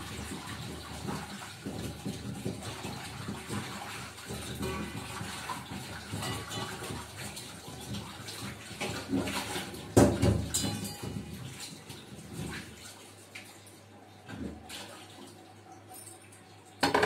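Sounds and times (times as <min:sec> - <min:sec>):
tap water running into sink: 0:00.0 - 0:17.0
loud dish clatter: 0:04.3 - 0:07.2, 0:08.9 - 0:11.4.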